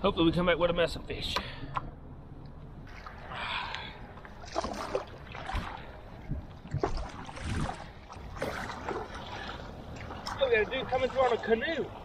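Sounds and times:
paddle splashing through water: 4.2 - 12.0.

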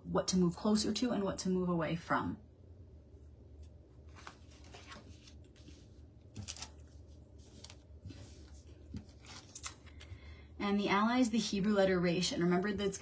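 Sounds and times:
cards rustling and tapping: 4.1 - 10.2.

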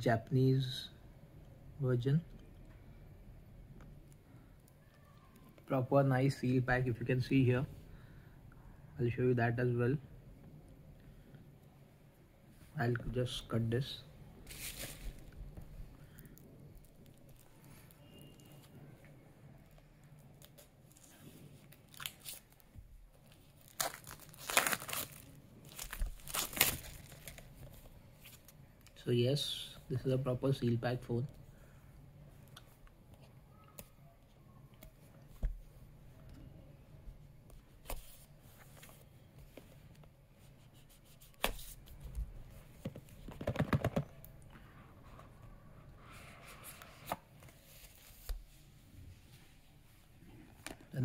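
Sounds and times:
plastic wrap crinkling and tearing: 14.4 - 15.4, 20.2 - 27.6.

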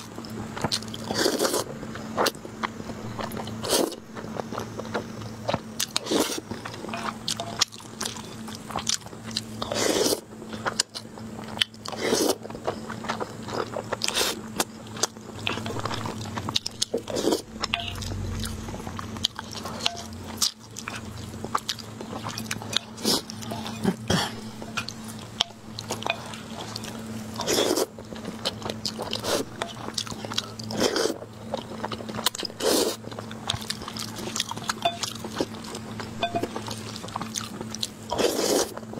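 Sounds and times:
wet chewing: 0.2 - 38.9
noodle slurping: 38.1 - 38.8.

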